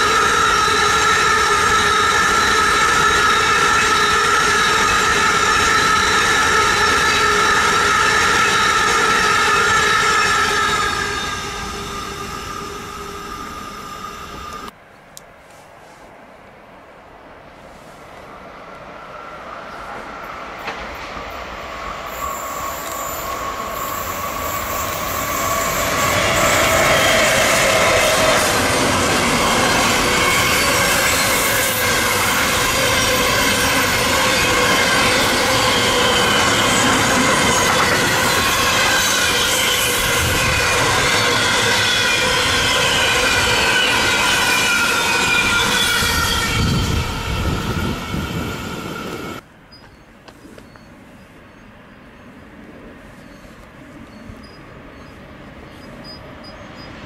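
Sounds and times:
held whining tones: 0.0s - 14.7s
wheels rushing on rails: 0.0s - 14.8s, 15.4s - 57.0s
train passing: 0.0s - 57.0s.

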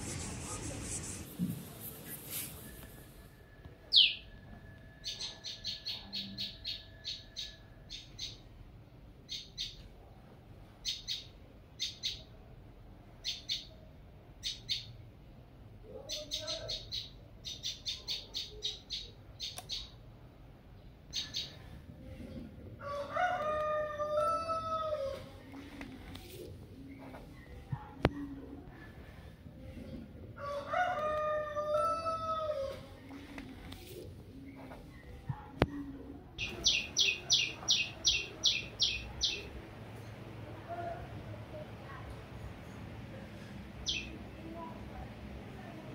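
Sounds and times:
small birds chirping: 3.9s - 4.3s, 10.8s - 12.3s, 16.1s - 20.0s, 36.4s - 39.6s, 43.8s - 44.2s
rooster crowing: 22.8s - 25.3s, 30.4s - 32.8s.

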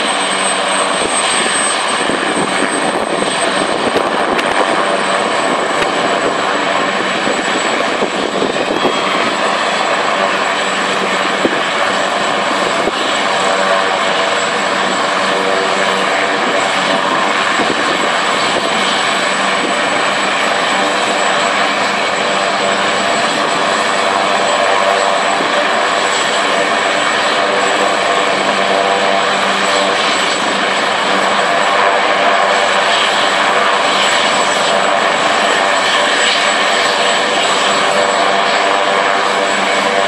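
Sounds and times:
helicopter engines and rotor: 0.0s - 40.0s
high turbine whine: 0.0s - 40.0s.

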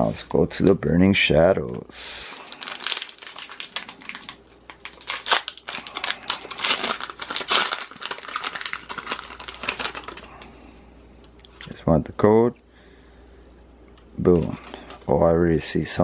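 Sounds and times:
foil wrapper crinkling: 2.4s - 10.5s.

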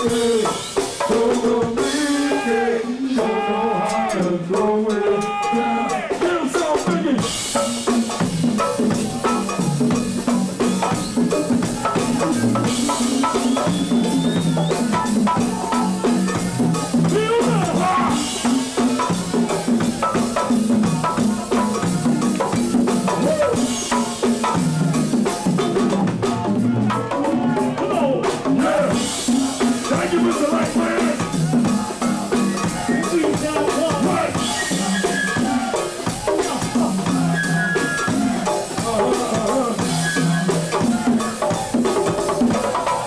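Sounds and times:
congas: 0.0s - 43.0s
drum kit: 0.0s - 43.0s
live band groove: 0.0s - 43.0s
stepping bass line: 6.0s - 41.7s.

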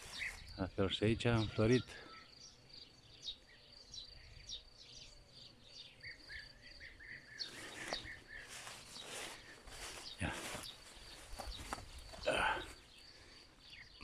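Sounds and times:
rustling hiss with crackles: 0.0s - 0.8s, 3.4s - 13.8s.

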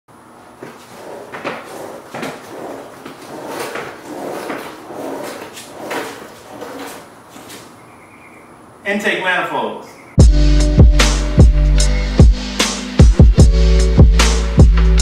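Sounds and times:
rolling seat knocking on concrete: 0.6s - 7.7s.

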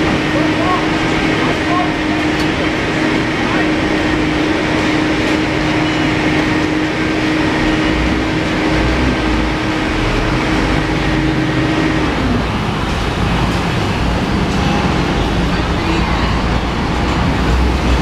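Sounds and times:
steady mechanical drone: 0.0s - 18.0s
street noise: 0.0s - 18.0s.

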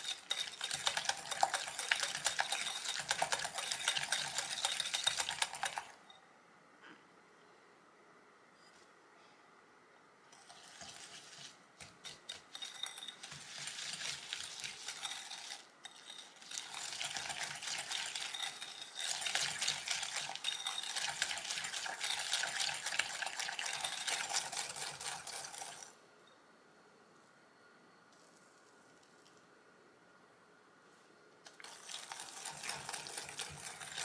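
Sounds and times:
wire whisk scraping glass bowl: 0.0s - 6.0s, 10.3s - 25.9s, 31.6s - 34.0s.

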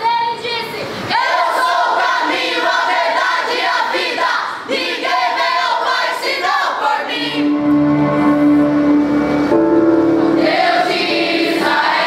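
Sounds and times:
young voices singing together: 1.0s - 7.8s, 10.1s - 12.0s
held instrumental note: 7.1s - 12.0s.

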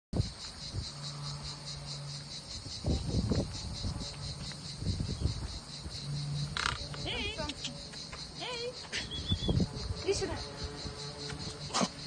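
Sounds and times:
low rumbles: 0.2s - 11.7s
insects chirping: 0.2s - 12.0s.

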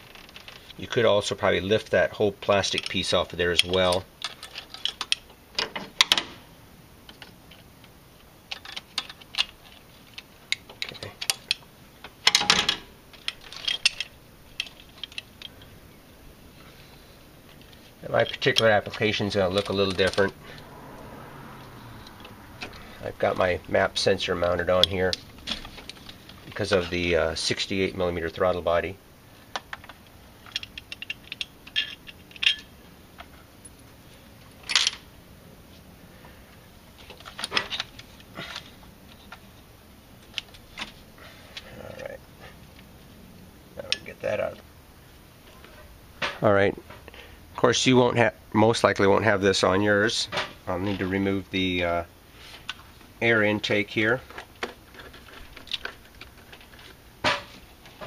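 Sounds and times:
small metal clicks and rattles: 0.0s - 0.8s, 2.4s - 6.3s, 7.1s - 15.7s, 17.5s - 20.7s, 29.5s - 33.8s, 54.2s - 58.0s
plastic clips and metal parts clattering: 2.4s - 6.3s, 8.5s - 11.6s, 12.2s - 15.7s, 17.5s - 20.4s, 29.5s - 33.3s, 37.0s - 39.4s, 54.2s - 58.0s.

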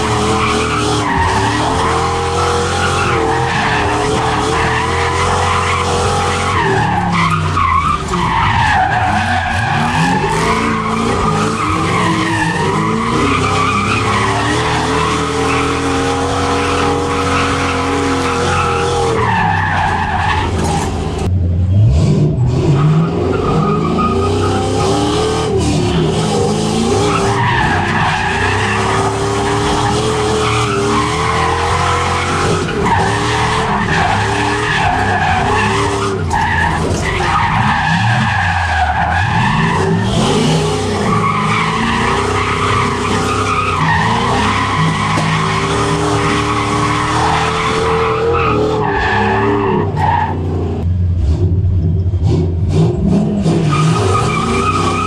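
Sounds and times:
tires squealing: 0.0s - 51.4s, 52.2s - 55.0s
car engine revving: 0.0s - 55.0s.

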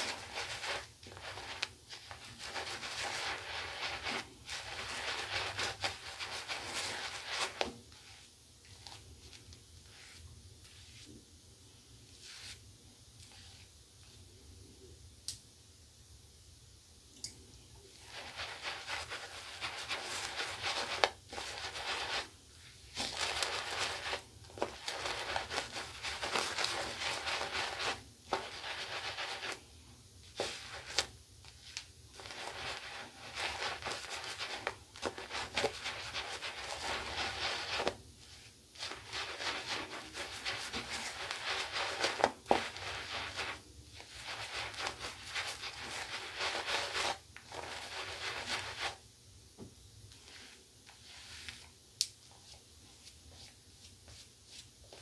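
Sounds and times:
shaving brush scrubbing lather: 0.0s - 9.0s, 17.9s - 22.3s, 22.9s - 29.6s, 30.3s - 31.1s, 31.7s - 49.0s.

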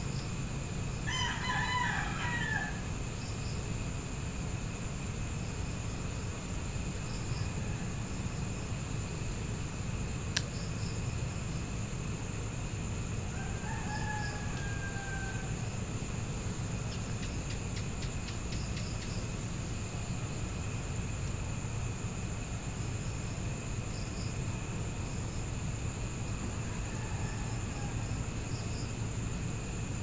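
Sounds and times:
crickets chirping: 0.0s - 30.0s
distant rooster crowing: 1.0s - 3.0s, 7.4s - 8.2s, 13.3s - 15.9s, 26.3s - 28.6s.

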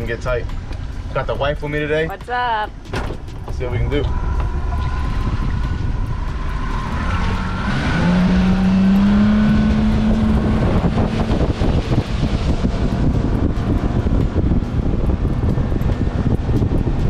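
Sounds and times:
wind on microphone: 2.8s - 17.0s
rushing water: 3.4s - 16.4s.

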